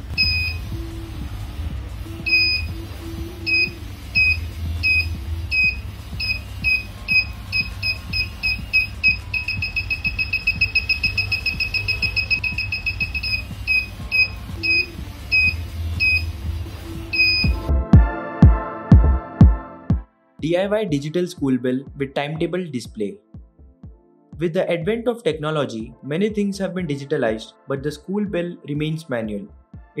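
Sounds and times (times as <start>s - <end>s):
high electronic beeps: 0.0s - 0.7s, 2.2s - 2.8s, 3.4s - 16.4s, 17.1s - 17.7s
background music: 0.0s - 30.0s.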